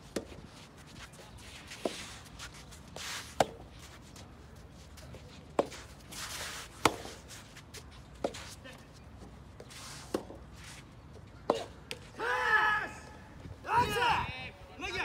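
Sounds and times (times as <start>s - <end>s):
racket hitting ball: 3.3s - 3.7s, 6.8s - 7.2s, 11.4s - 12.0s.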